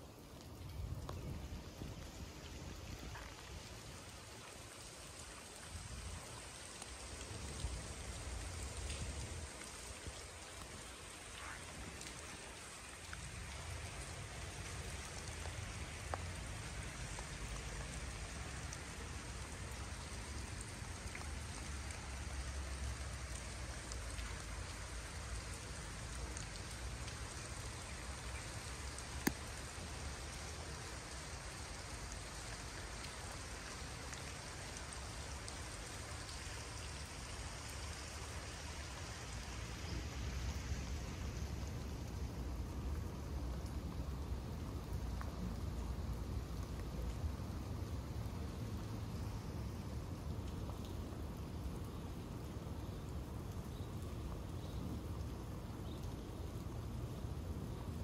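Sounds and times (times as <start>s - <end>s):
steady rain hiss: 0.0s - 58.0s
single raindrop ticks: 0.3s - 3.7s, 5.2s - 30.1s.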